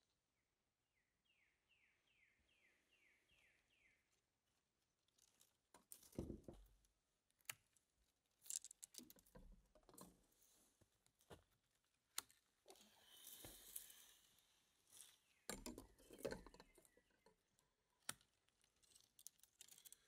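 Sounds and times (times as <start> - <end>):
bird chirps: 1.2 - 4.1.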